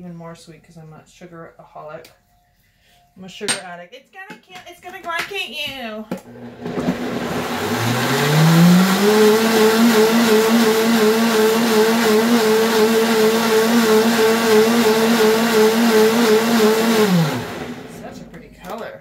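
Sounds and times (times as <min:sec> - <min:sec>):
blender motor running: 0:06.2 - 0:18.4.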